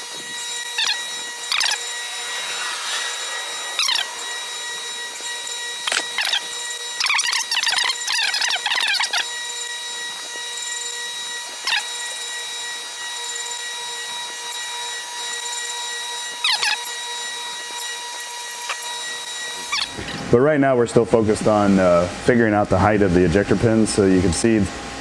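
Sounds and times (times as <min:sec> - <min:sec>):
grinding wheel screeching: 0:00.0 - 0:20.4
surface grinder whine: 0:00.0 - 0:22.2.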